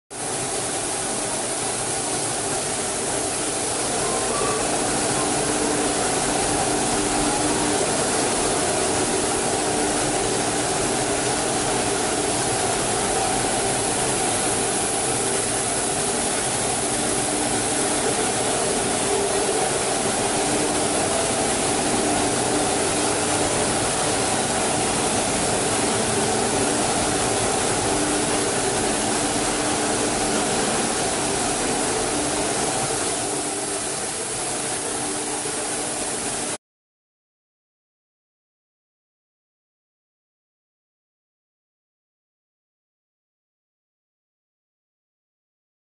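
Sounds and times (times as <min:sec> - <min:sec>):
workshop machinery din: 0:00.2 - 0:36.5.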